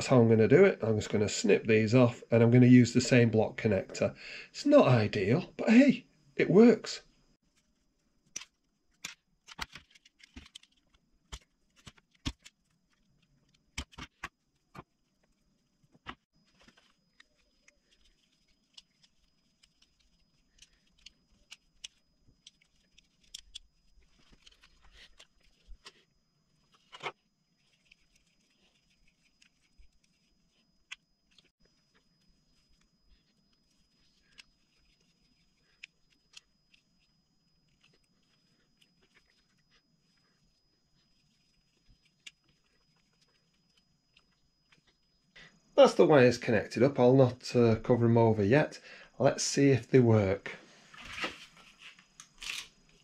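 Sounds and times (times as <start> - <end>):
faint steady high tone: 16.3 - 53.0
small tools clicking on wires: 17.1 - 25.9.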